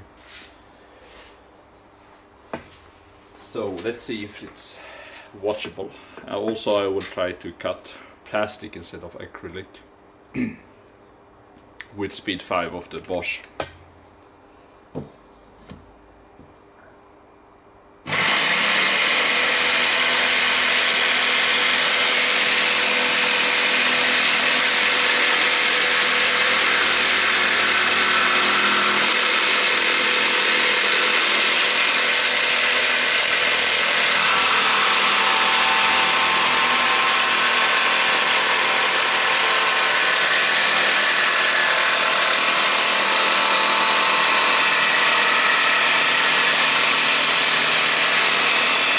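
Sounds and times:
jigsaw cutting plastic sheet: 18.1s - 48.9s.

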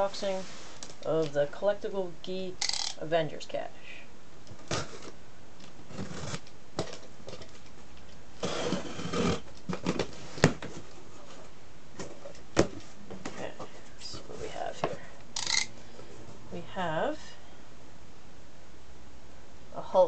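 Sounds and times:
cardboard flaps rustling: 8.4s - 15.1s.

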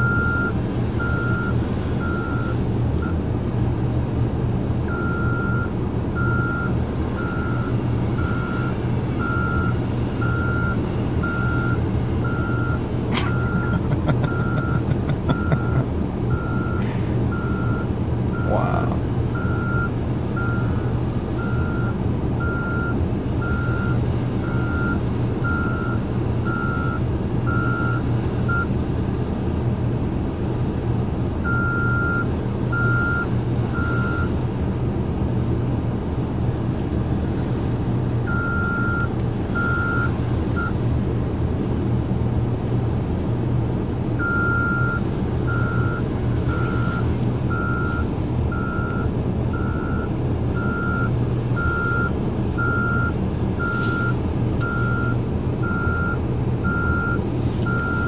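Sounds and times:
back-up alarm beeping: 0.0s - 3.2s, 4.9s - 18.6s, 19.4s - 20.8s, 21.4s - 28.7s, 31.4s - 34.3s, 38.3s - 40.8s, 44.2s - 58.0s
low engine drone: 0.0s - 58.0s.

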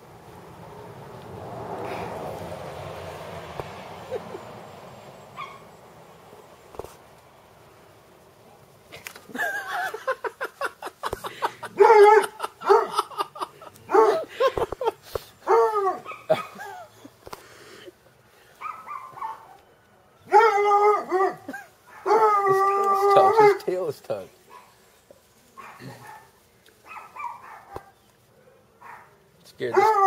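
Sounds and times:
dog barking and baying: 5.4s - 5.7s, 11.6s - 13.2s, 13.9s - 14.3s, 15.4s - 16.8s, 18.6s - 19.6s, 20.3s - 23.7s, 25.6s - 30.0s.

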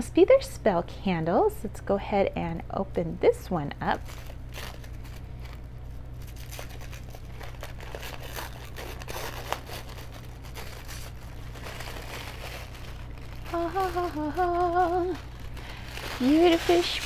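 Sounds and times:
paper crinkling and rustling: 3.8s - 17.0s.

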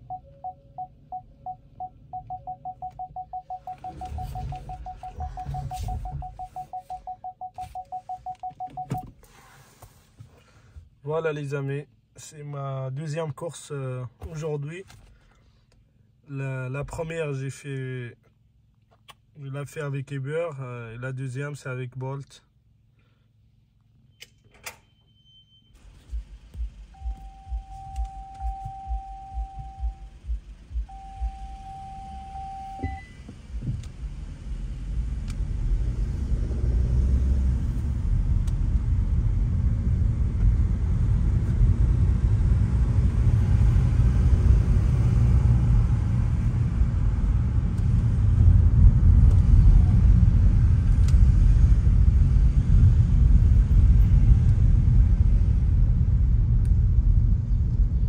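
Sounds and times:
long electronic beeps: 0.0s - 9.0s, 27.0s - 33.2s
car road and engine rumble: 0.0s - 58.0s.

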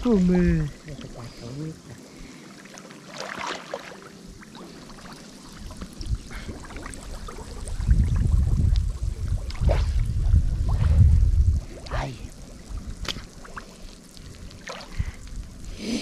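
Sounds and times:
river water splashing and trickling: 0.0s - 15.7s
deep rumble on microphone: 5.5s - 15.8s.

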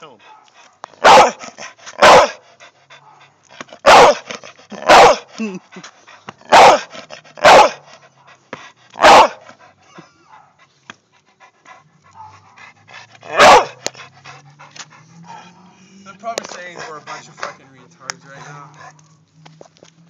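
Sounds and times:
dog barking: 0.3s - 2.4s, 3.0s - 5.3s, 6.5s - 8.4s, 9.0s - 9.5s, 10.2s - 10.6s, 12.1s - 12.4s, 13.2s - 13.9s.

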